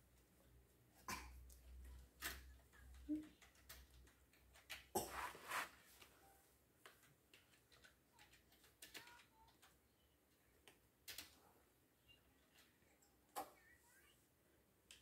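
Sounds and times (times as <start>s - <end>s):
plastic pieces clicking together: 1.6s - 4.9s.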